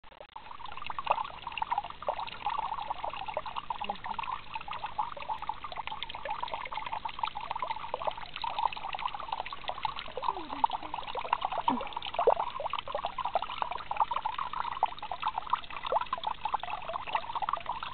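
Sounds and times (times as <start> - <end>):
water trickling over rock: 0.1 - 17.9.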